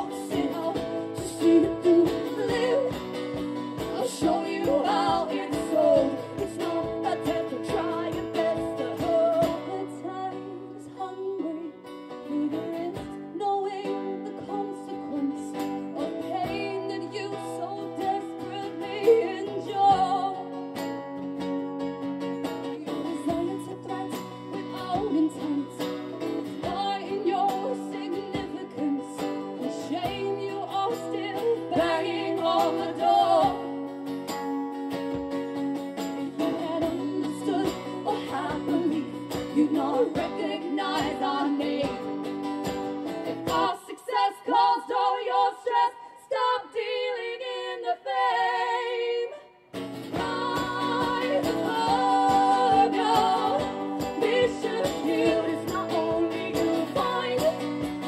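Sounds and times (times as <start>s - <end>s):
person singing: 0.0s - 20.5s, 22.6s - 33.8s, 36.3s - 49.5s, 50.1s - 58.0s
strummed acoustic guitar: 0.0s - 45.9s, 49.7s - 58.0s.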